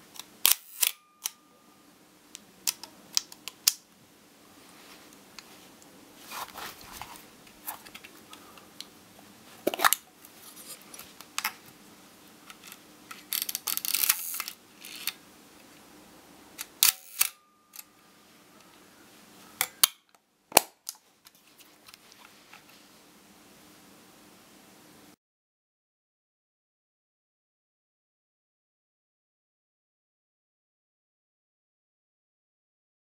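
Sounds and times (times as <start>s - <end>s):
camera mechanical clicks: 0.2s - 1.4s, 13.3s - 15.2s, 16.6s - 17.9s.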